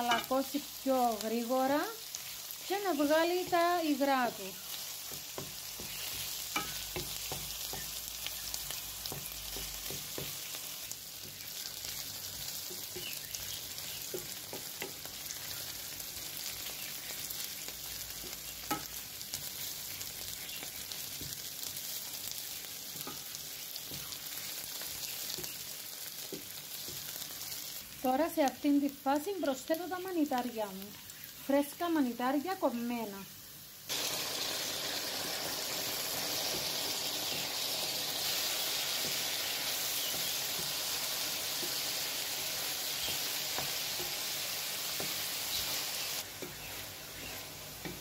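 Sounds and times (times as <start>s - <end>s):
wooden spoon knocking on pan: 0.0s - 0.4s, 5.1s - 7.9s, 9.0s - 10.4s, 14.1s - 15.1s
onion sizzling in oil: 0.0s - 48.0s.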